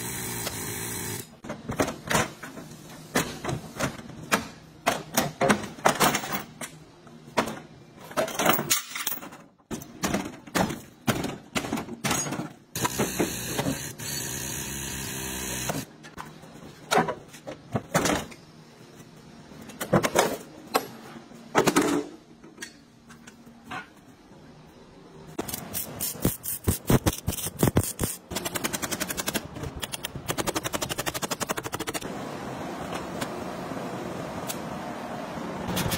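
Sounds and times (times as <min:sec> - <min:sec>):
power tool noise: 0:00.0 - 0:01.3, 0:12.8 - 0:15.9.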